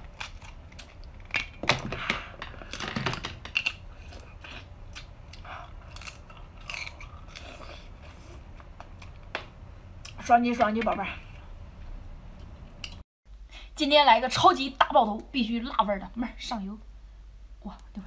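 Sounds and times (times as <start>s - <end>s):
crab legs cracking: 0.0s - 7.8s
chewing and wet mouth sounds: 3.5s - 9.2s.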